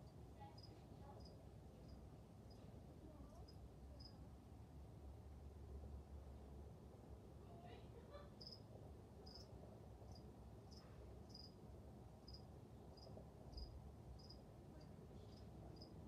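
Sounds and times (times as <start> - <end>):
cricket chirping: 0.6 - 2.6, 3.4 - 4.2, 8.4 - 11.6, 12.2 - 14.5, 15.3 - 16.0.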